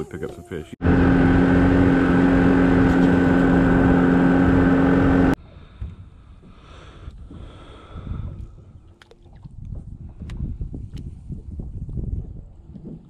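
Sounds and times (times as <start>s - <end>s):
outboard motor running: 0.8s - 5.4s.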